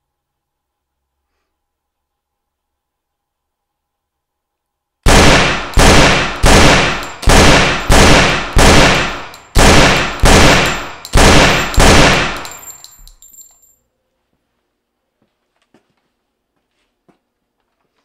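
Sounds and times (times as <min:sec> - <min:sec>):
pistol gunshots echoing: 0:05.1 - 0:12.8
faint high ringing: 0:12.4 - 0:14.3.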